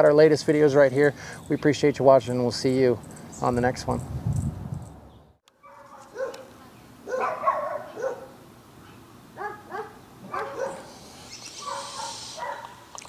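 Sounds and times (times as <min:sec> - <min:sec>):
dogs barking: 0:05.6 - 0:12.9.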